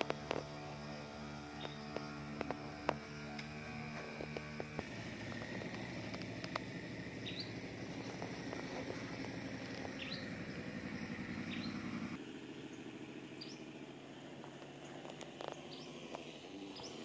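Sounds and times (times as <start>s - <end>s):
engine running: 0.0s - 17.0s
bird chirping: 1.4s - 2.2s, 7.2s - 12.8s, 13.4s - 13.7s, 14.7s - 17.0s.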